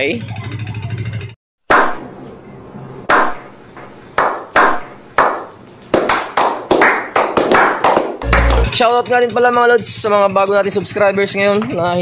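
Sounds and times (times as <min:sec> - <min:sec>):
slow clapping by small group: 0:04.2 - 0:08.8.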